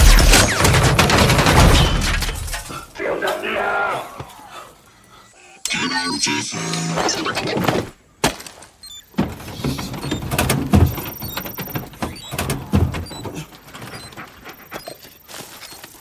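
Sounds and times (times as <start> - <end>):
loud burst: 0.0 - 2.6
rattling and sharp knocks: 0.0 - 2.8, 8.2 - 14.3.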